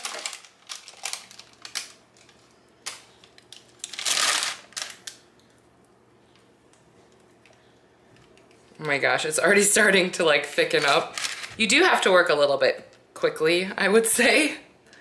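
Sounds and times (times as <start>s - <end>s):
parchment paper rustle: 0.0s - 5.2s, 10.6s - 11.6s.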